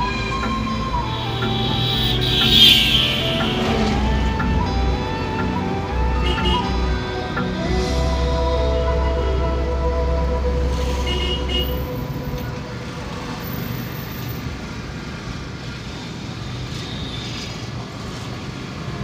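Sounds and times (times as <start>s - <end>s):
car horn toot: 0.0s - 4.2s, 6.2s - 6.9s, 10.7s - 12.6s
background music: 0.0s - 13.9s
car road and engine noise: 0.0s - 19.0s.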